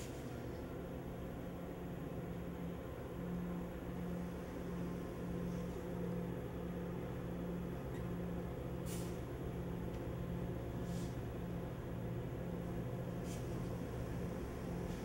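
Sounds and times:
diesel train idling: 0.0s - 15.0s
brief hisses: 8.8s - 9.2s.

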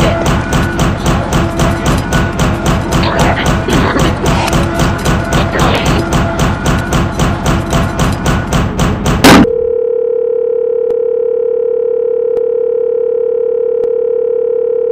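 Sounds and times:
music with regular beats: 0.0s - 9.4s
steady test tone: 0.0s - 9.8s.

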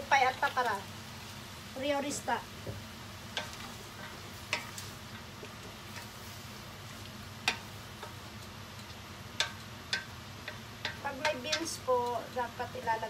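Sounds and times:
spatula stirring noodles in pot: 2.2s - 12.3s.

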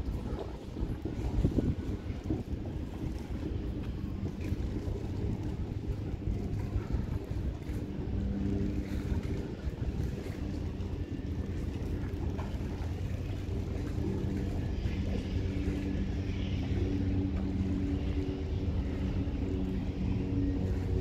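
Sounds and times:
low mechanical hum: 0.0s - 21.0s
wind on microphone: 0.0s - 21.0s.

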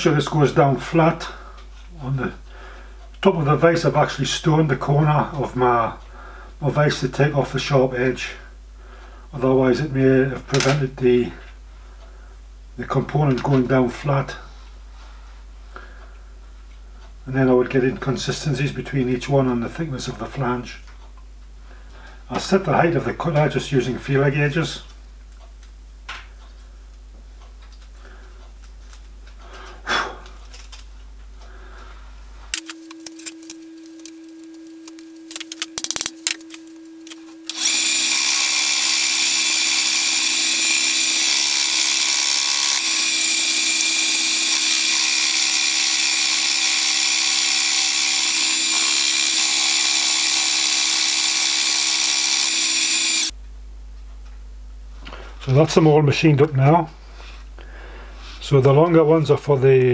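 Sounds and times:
milling spindle humming: 32.5s - 53.4s
high-pitched metal cutting noise: 32.6s - 53.3s.

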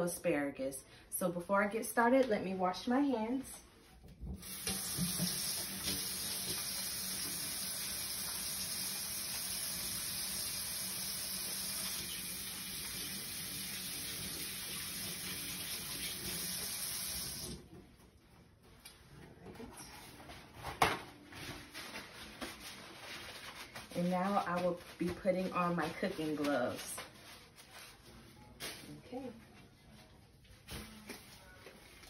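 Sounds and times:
faucet running into metal sink: 4.4s - 17.6s.

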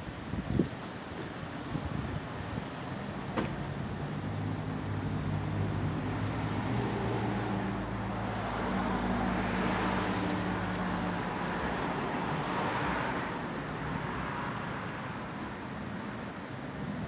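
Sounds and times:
vehicle passing: 4.4s - 14.6s.

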